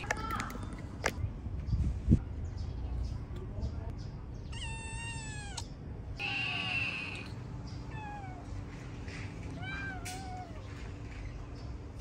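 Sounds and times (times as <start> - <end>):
kitten meowing: 4.5 - 7.3, 9.6 - 10.6.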